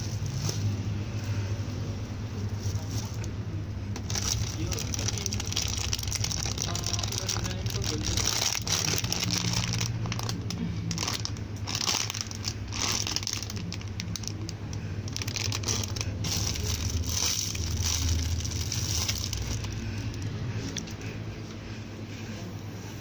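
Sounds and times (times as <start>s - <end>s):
steady low hum: 0.0s - 23.0s
plastic packaging crinkling: 3.9s - 21.0s.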